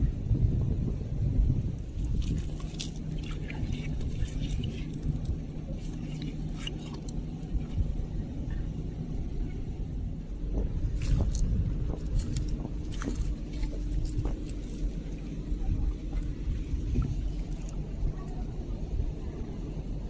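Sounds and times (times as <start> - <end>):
faint hum: 0.0 - 20.0
low rumble: 0.0 - 20.0
rock clicks and scrapes: 1.9 - 7.6, 10.9 - 15.2.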